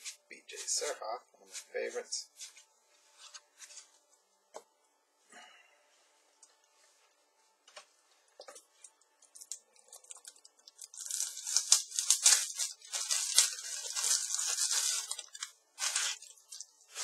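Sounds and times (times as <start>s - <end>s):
cellophane wrapper crackling: 8.8s - 17.0s.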